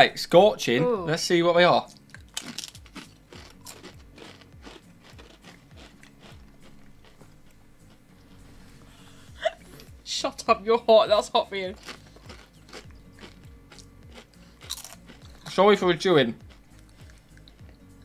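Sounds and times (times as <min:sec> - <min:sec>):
crisps crunching: 0:01.9 - 0:08.0, 0:11.7 - 0:15.6.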